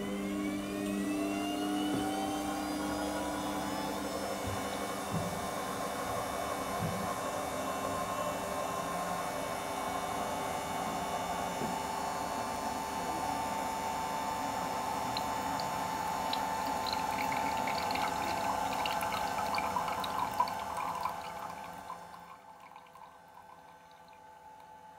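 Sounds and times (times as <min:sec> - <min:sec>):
juicer humming: 0:00.0 - 0:24.9
juice trickling into glass: 0:15.0 - 0:24.8.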